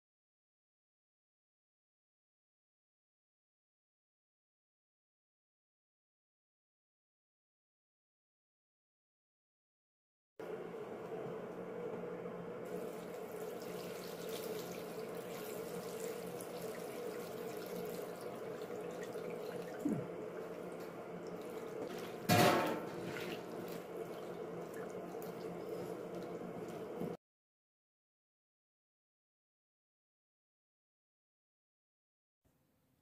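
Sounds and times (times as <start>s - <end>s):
water sloshing in a bowl: 12.7s - 27.2s
sharp metallic clank: 22.3s - 22.9s.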